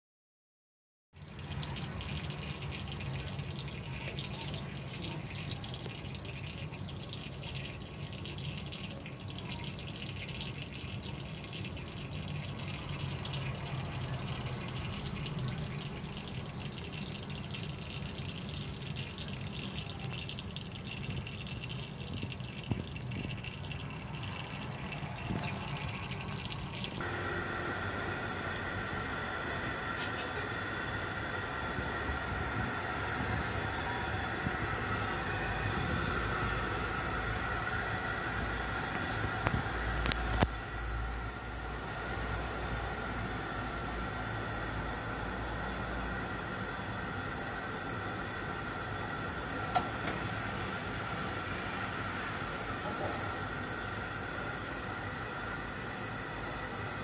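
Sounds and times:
low hum: 20.1 - 47.4
hiss with high whine: 27.0 - 57.0.

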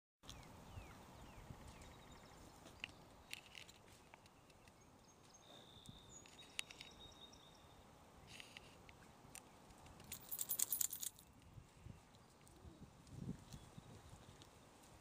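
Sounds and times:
faint high chirps: 4.5 - 7.8.

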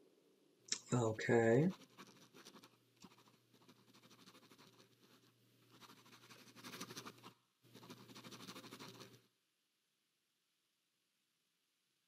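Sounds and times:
pen scratching on paper: 1.6 - 9.2.

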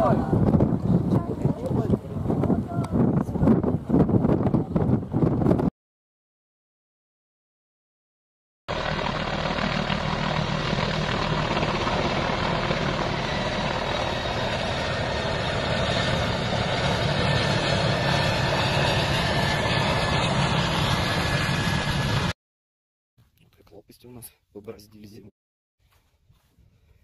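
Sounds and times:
helicopter flying overhead: 8.7 - 22.4.

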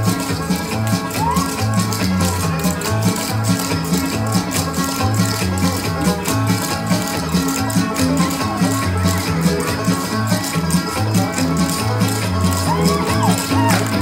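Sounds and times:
recorded music with bass and strings: 0.0 - 14.0.

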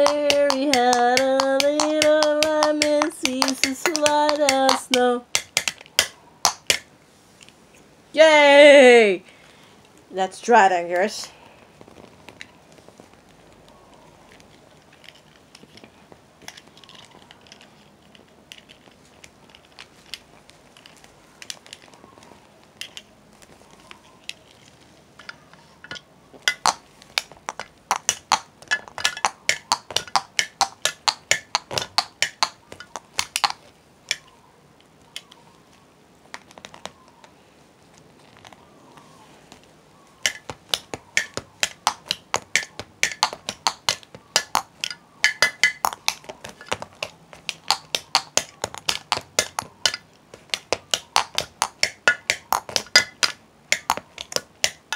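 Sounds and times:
drumming on a hard surface: 27.5 - 33.5.

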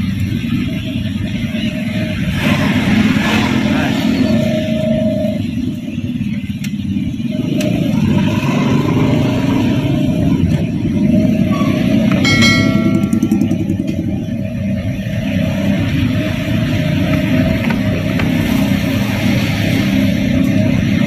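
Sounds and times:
car engine and tyre rumble: 0.0 - 12.8, 13.4 - 21.0
short high-pitched beep: 11.5 - 13.5.

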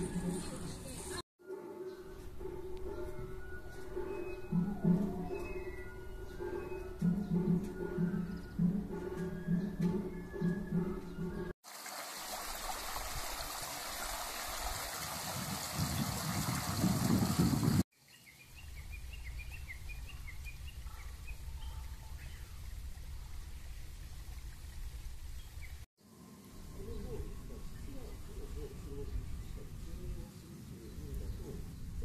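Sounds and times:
bird chirping: 1.8 - 11.5, 18.0 - 23.9
running water: 11.6 - 17.8.

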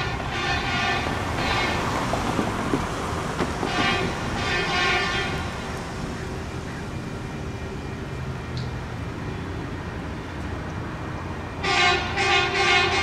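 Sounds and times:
street traffic rumble: 0.0 - 13.0
machine horn blasts: 11.6 - 13.0.

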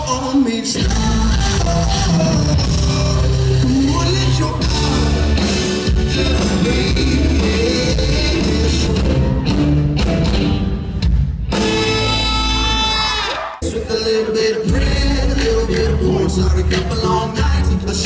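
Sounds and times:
person singing: 0.0 - 9.6, 11.6 - 18.0
drums: 0.0 - 18.0
live rock band playing: 0.0 - 18.0
electric guitar: 0.8 - 13.6.

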